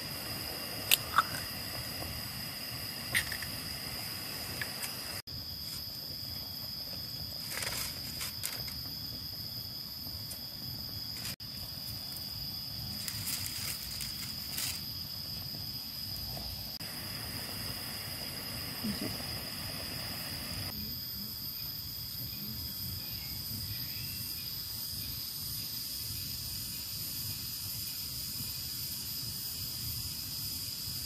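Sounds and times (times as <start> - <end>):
pot of water boiling: 0.0 - 21.0
insect drone: 0.0 - 31.0.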